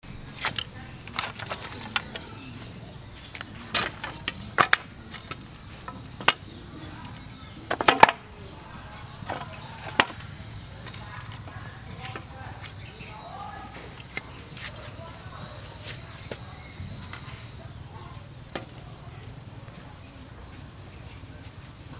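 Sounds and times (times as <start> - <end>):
bamboo poles knocking and clattering: 0.3 - 2.4, 3.2 - 8.3, 9.2 - 12.8.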